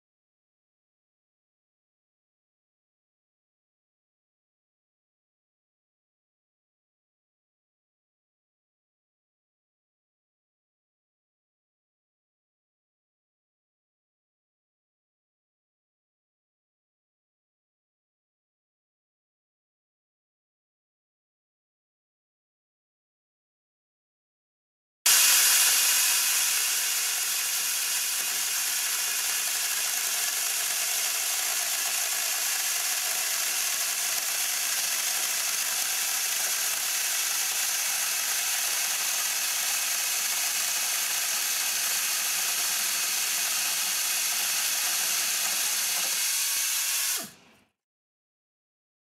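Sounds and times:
pneumatic chainsaw cutting plastic: 25.1s - 47.6s.

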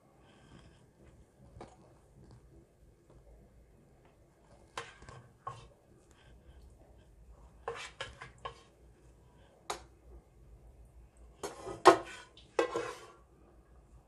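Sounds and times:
spoon scraping cooking pots: 4.5s - 8.9s, 11.4s - 13.3s.

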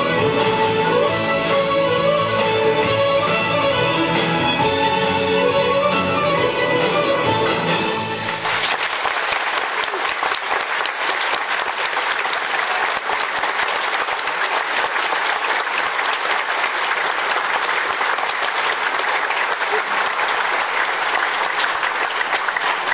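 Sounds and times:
audience applauding: 6.9s - 22.9s.

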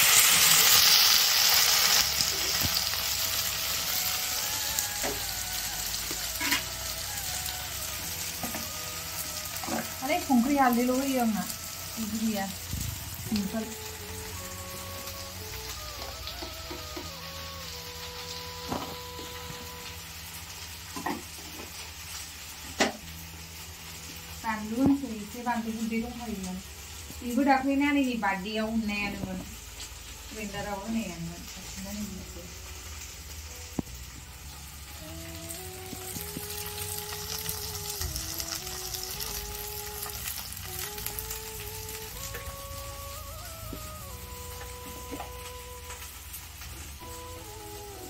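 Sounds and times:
food sizzling in a pan: 0.0s - 48.0s
simple background music melody: 0.1s - 48.0s.

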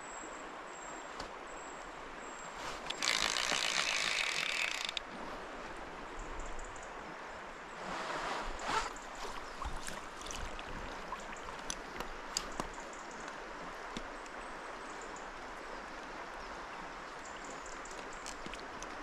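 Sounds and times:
river water flowing: 0.0s - 19.0s
faint sharp clicks: 2.8s - 5.0s.

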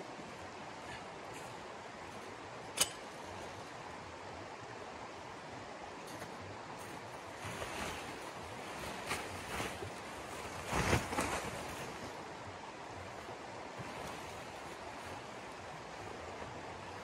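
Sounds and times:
canvas tarp rustling: 6.1s - 17.0s
fabric flapping: 6.8s - 12.2s.

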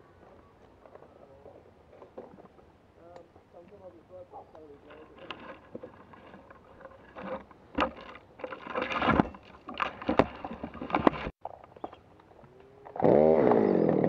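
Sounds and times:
climbing gear scraping on bark: 4.8s - 11.8s, 12.9s - 14.0s.

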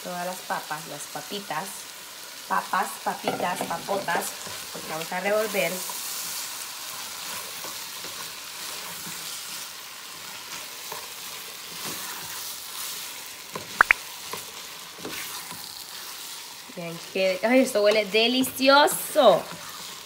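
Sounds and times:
meat and potatoes sizzling in a pan: 0.0s - 20.0s
faint scrapes of stirring: 19.2s - 20.0s.

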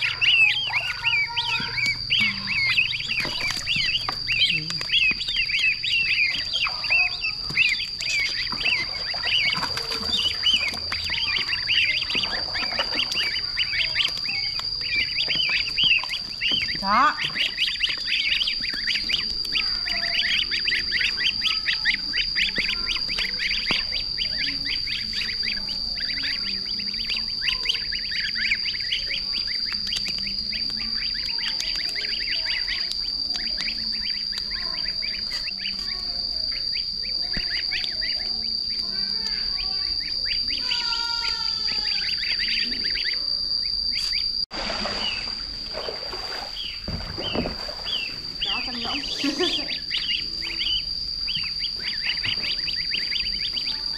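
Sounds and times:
ducklings peeping: 0.0s - 53.9s
steady high-pitched whine: 0.0s - 53.9s.

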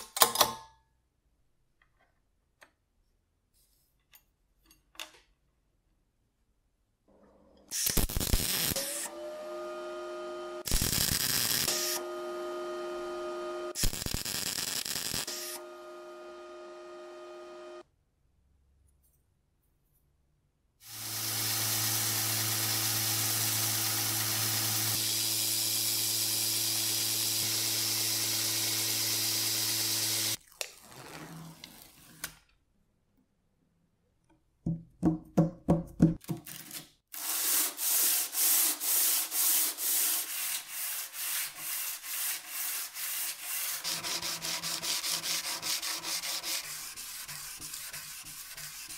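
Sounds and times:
welding torch: 7.7s - 9.1s, 10.6s - 12.0s, 13.8s - 15.6s, 20.8s - 30.4s
belt grinder grinding blade: 20.9s - 30.4s, 43.4s - 47.3s
blade sanding on sandpaper: 37.2s - 48.9s.

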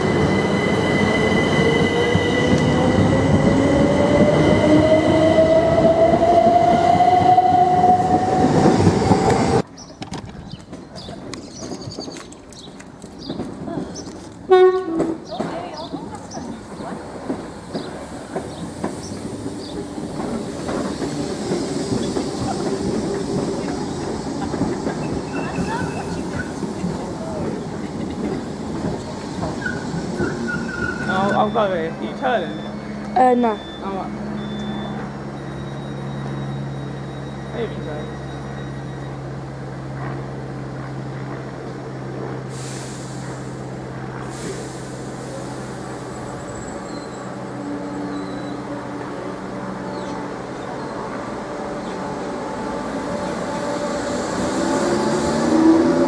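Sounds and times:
rail clicks: 0.0s - 31.8s
train wheels on rails: 0.0s - 56.0s
high hiss of released air: 42.5s - 46.3s.

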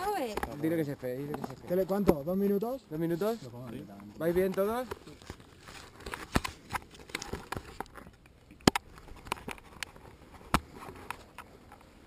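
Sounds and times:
camera gear handling clicks and knocks: 3.6s - 11.9s.

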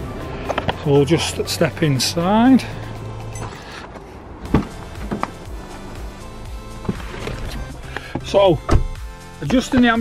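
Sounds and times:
car door latch click: 6.8s - 9.0s.

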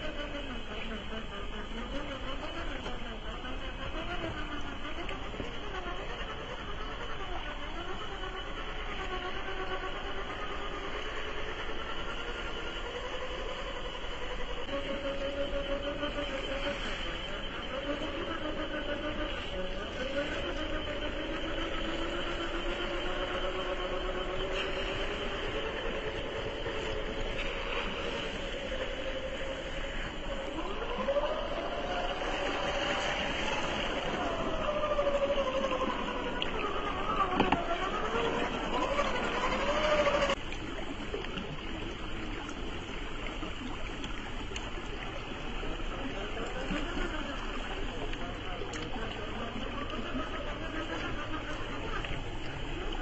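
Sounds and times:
electric motor and gears whining: 0.0s - 40.6s
creek flowing: 0.0s - 53.0s.

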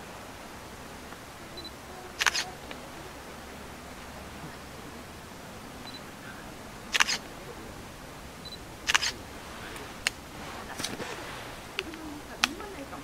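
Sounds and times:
camera shutter clicking: 2.2s - 2.5s, 6.9s - 7.2s, 8.9s - 9.2s.

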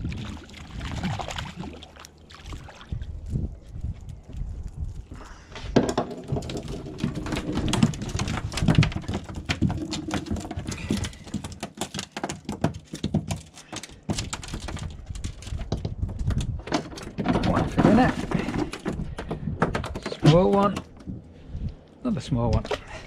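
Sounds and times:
fish flapping on boat deck: 6.2s - 21.2s.

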